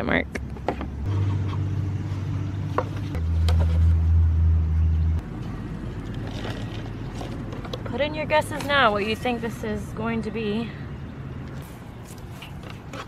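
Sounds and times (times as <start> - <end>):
low engine hum: 0.5 - 8.4.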